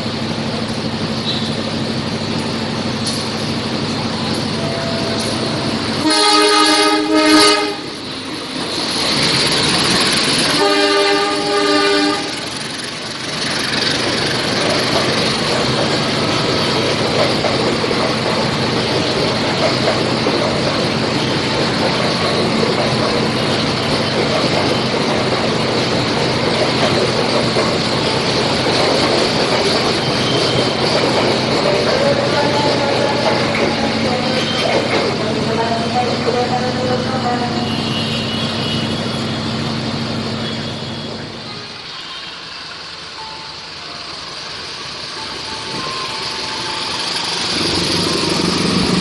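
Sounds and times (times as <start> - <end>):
train coaches rumbling and clattering: 0.0 - 49.0
locomotive horn blasts: 6.0 - 7.9, 10.5 - 12.4.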